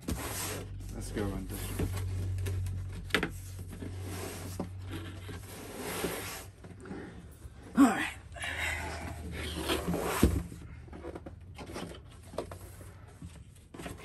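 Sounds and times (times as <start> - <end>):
cardboard box rubbing and sliding: 3.4 - 6.7, 9.2 - 10.6.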